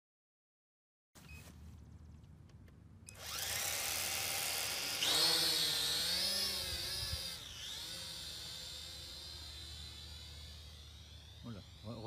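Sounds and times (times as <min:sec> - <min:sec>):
drone propellers whirring: 0:03.1 - 0:12.0.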